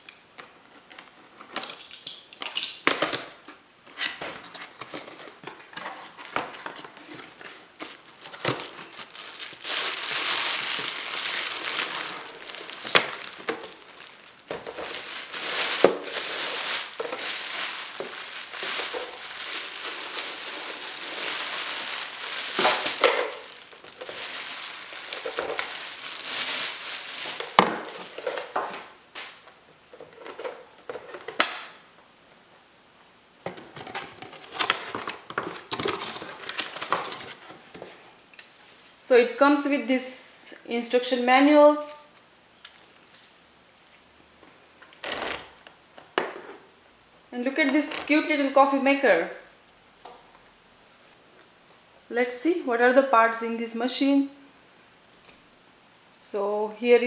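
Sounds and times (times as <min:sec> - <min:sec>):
plastic wrapping crinkling: 0:04.4 - 0:29.5, 0:33.6 - 0:38.9.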